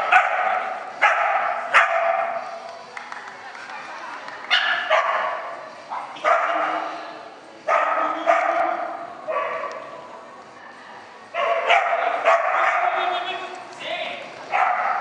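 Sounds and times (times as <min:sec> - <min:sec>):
dog barking with echo: 0:00.0 - 0:02.4, 0:04.5 - 0:06.9, 0:07.7 - 0:09.8, 0:11.4 - 0:13.0, 0:14.5 - 0:15.0.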